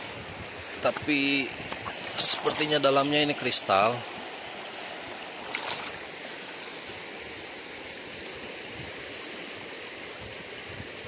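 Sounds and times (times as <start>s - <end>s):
river water rushing: 0.0s - 11.0s
stone splashing in water: 5.5s - 6.0s.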